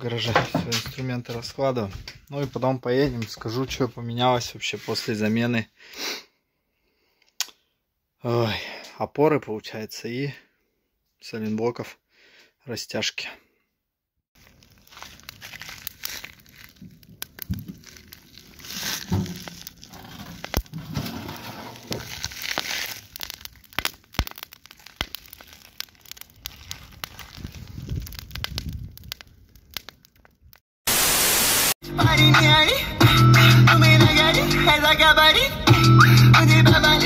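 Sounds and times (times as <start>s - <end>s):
crackling and clicking: 14.4s - 20.8s, 21.8s - 30.6s
loud burst of hiss: 30.9s - 31.8s
music: 31.8s - 37.0s.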